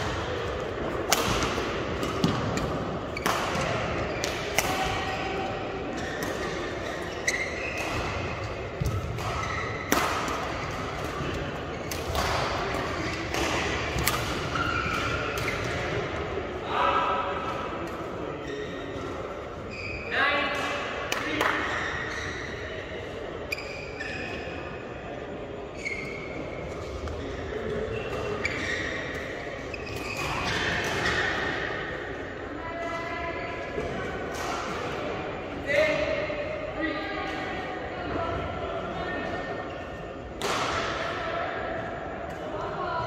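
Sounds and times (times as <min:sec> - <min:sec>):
racket striking shuttlecock: 0:01.1 - 0:05.0
shoes squeaking on court: 0:05.9 - 0:09.9, 0:18.4 - 0:20.2, 0:23.4 - 0:24.6, 0:25.6 - 0:31.5.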